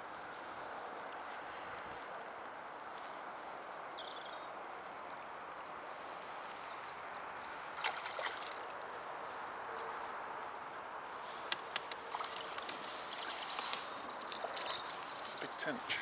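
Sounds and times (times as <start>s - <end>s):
small birds chirping: 0.0s - 9.0s, 11.2s - 16.0s
outdoor background hiss: 0.0s - 16.0s
sharp clicks: 11.5s - 12.6s.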